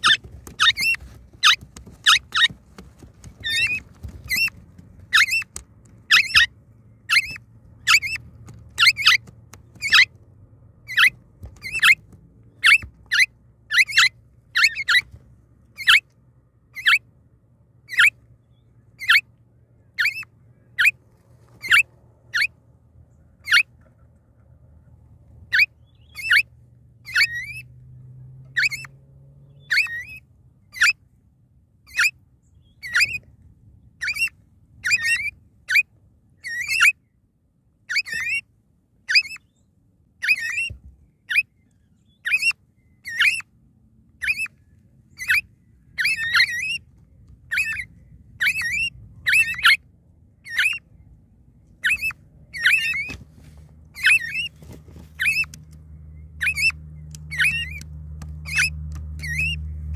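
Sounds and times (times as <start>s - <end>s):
parrots squeaky chirps: 0.0s - 2.6s, 3.4s - 10.1s, 10.9s - 15.1s, 15.8s - 16.1s, 16.7s - 17.1s, 17.9s - 18.2s, 19.0s - 19.3s, 20.0s - 21.0s, 21.6s - 22.6s, 23.4s - 23.7s, 25.5s - 27.7s, 28.5s - 31.0s, 31.9s - 33.2s, 34.0s - 37.0s, 37.9s - 38.5s, 39.1s - 39.6s, 40.2s - 43.5s, 44.2s - 49.8s, 50.4s - 50.9s, 51.7s - 53.3s, 53.9s - 59.9s.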